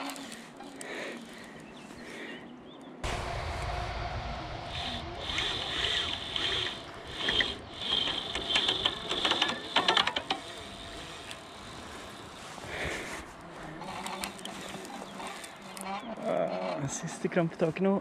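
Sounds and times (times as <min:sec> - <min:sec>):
fishing reel ratchet clicking: 0:06.4 - 0:12.3.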